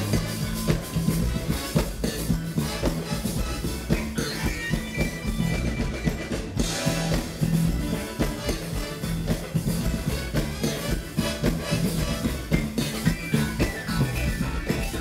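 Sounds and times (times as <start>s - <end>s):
drum kit beat: 0.0s - 15.0s
electric bass guitar: 0.0s - 15.0s
live funk band playing: 0.0s - 15.0s.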